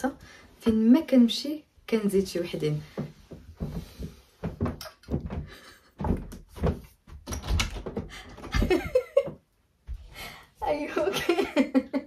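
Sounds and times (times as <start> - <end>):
person laughing: 8.4 - 9.4.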